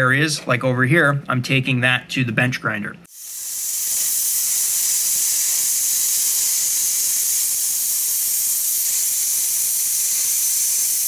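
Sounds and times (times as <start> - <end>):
plasma cutter hissing: 3.1 - 11.0.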